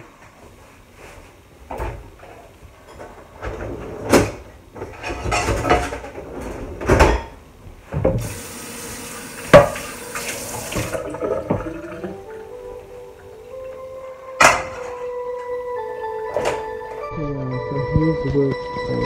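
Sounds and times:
tap running over pan: 9.4 - 12.2.

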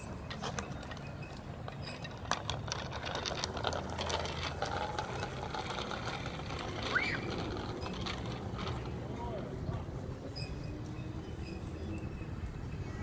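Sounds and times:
bicycle wheels rattling on asphalt: 0.0 - 13.0
short squeak: 10.3 - 12.3.

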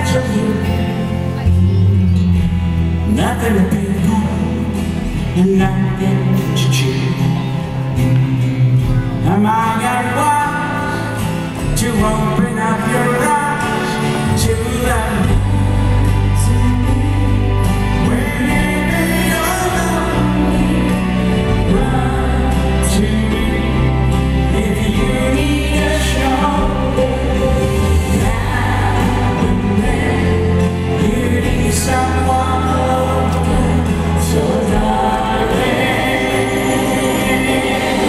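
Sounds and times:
band playing soft-rock ballad: 0.0 - 38.0
female backing singers: 25.0 - 38.0.

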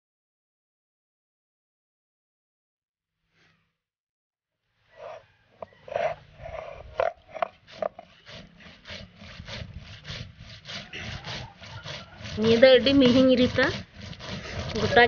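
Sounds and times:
stone roller grinding seeds: 4.9 - 15.0.

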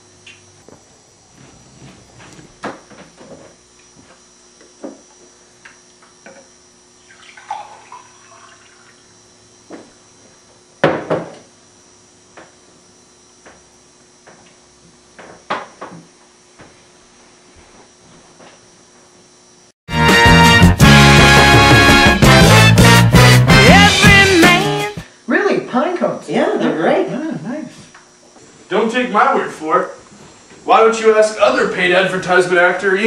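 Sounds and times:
water pouring: 7.0 - 9.1.

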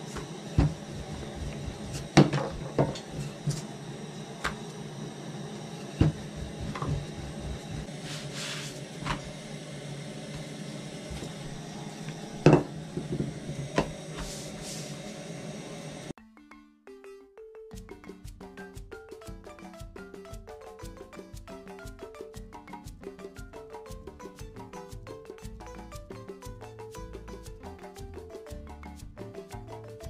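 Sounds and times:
rolling pin on a table: 0.0 - 3.7, 5.7 - 9.3, 10.4 - 15.1
plucked marimba-like music: 16.2 - 30.0.

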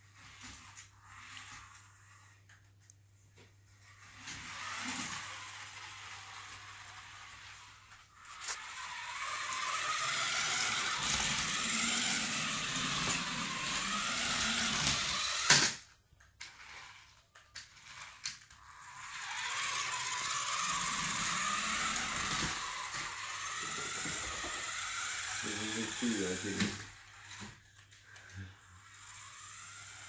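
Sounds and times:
toy car motor whirring: 0.0 - 2.8, 3.4 - 30.0.

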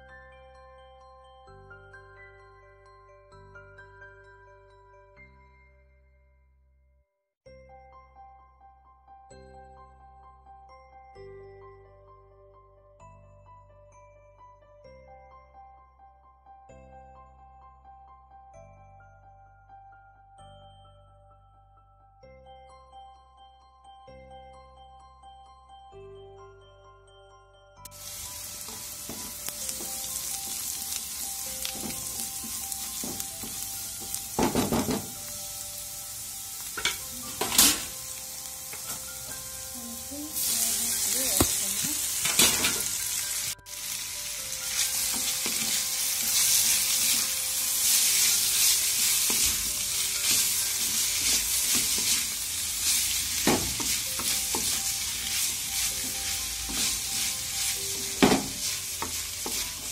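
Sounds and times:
vegetables sizzling in a pan: 27.9 - 59.9
spatula scraping and knocking pan: 48.0 - 59.9.

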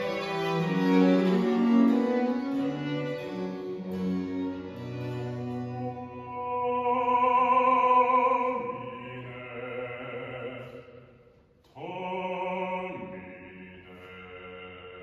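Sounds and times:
baroque string ensemble: 0.0 - 10.7.

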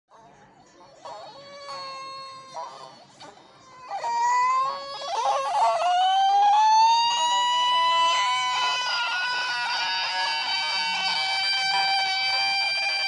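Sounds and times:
long rising scream: 5.9 - 13.0.

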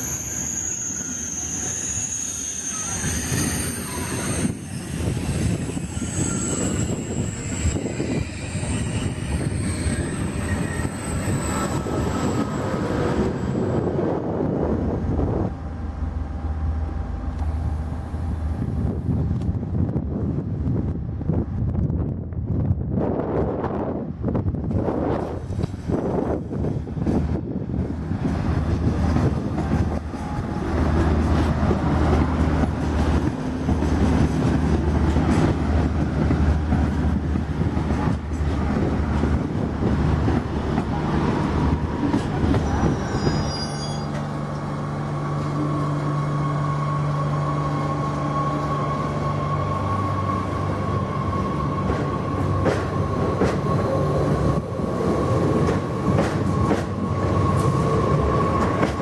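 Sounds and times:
brief high squeal: 0.0 - 13.5, 42.6 - 44.3
diesel railcar engine droning: 0.0 - 59.0
electric train hum and whine: 0.0 - 59.0
train wheels rumbling: 0.0 - 59.0.

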